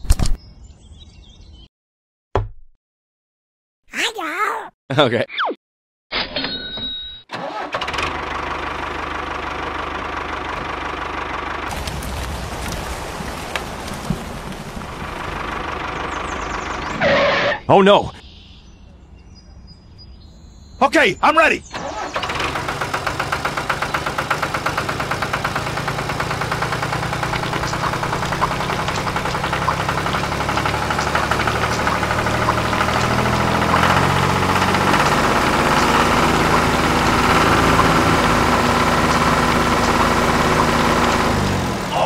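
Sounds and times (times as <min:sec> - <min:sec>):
tractor engine running: 0:07.3 - 0:17.6, 0:21.0 - 0:42.0.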